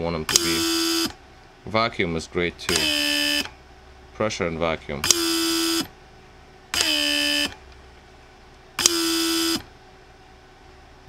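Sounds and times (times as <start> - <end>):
pump buzzing hum: 0.0 - 1.5, 2.5 - 4.2, 5.0 - 10.3.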